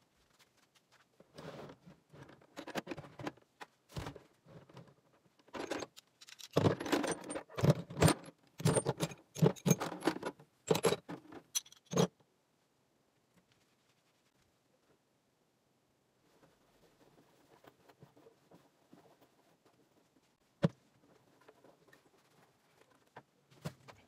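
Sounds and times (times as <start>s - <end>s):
metal tools clanking in toolbox: 5.6s - 12.1s.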